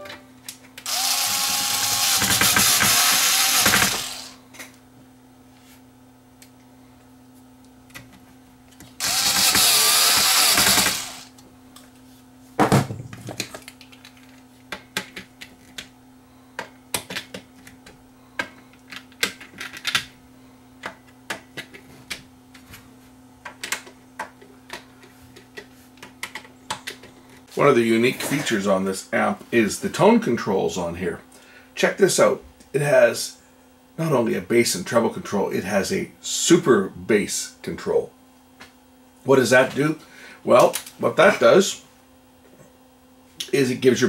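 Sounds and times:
cordless screwdriver whirring: 0.8s - 4.4s, 9.0s - 11.3s.

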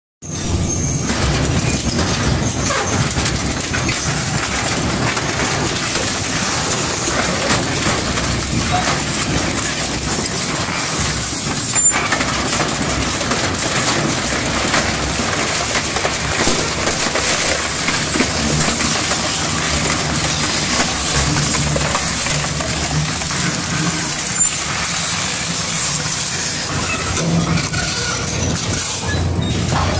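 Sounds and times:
shredder grinding metal and wood: 0.3s - 29.9s
sharp crack: 12.7s - 25.6s.

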